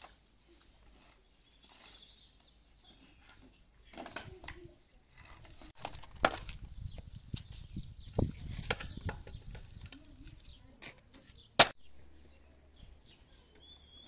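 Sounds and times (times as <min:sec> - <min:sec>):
faint bird chirps: 0:06.6 - 0:14.0
firewood sticks clacking and knocking: 0:08.5 - 0:11.8.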